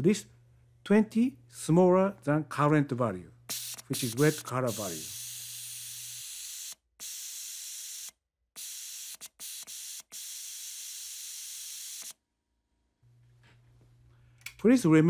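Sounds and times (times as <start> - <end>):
compressed air hissing: 3.5 - 12.2.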